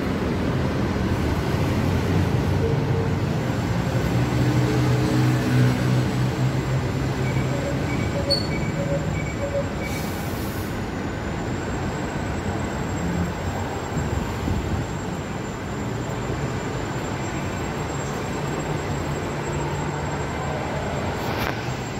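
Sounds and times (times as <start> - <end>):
city traffic noise: 0.0 - 21.9
vehicle engine hum: 0.0 - 21.9
short beeps: 7.1 - 10.0.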